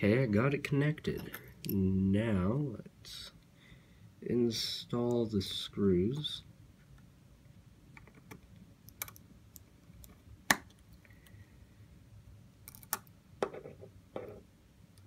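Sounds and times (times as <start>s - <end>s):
screwdriver clicking on tiny screws: 12.6s - 13.1s.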